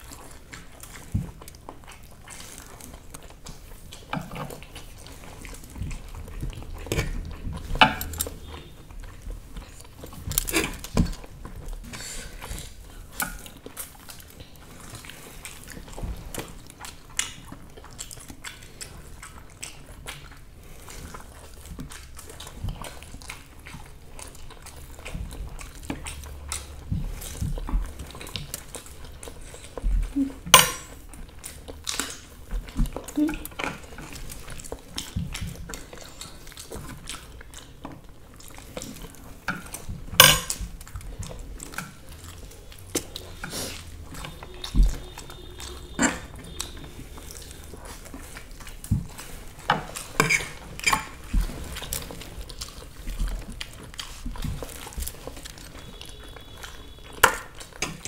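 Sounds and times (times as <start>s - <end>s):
people chewing noodles: 0.0s - 58.0s
cutlery clicking against plates: 40.2s - 40.6s.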